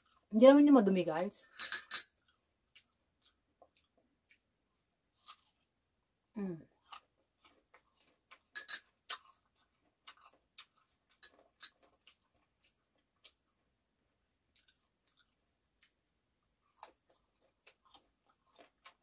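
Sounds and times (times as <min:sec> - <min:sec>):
close chewing with lip smacks: 0:02.2 - 0:05.7, 0:06.8 - 0:13.7, 0:14.5 - 0:19.0.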